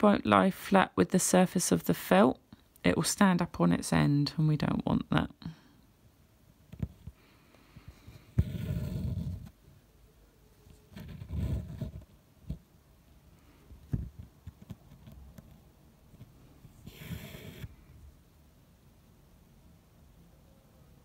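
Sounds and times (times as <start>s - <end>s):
thread scraping through fabric: 8.2s - 9.6s, 10.8s - 12.6s, 16.2s - 17.8s.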